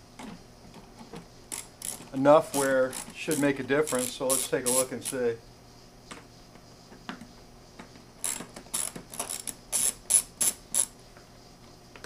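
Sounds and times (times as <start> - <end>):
hand ratchet clicking: 1.5 - 5.2, 8.2 - 10.9.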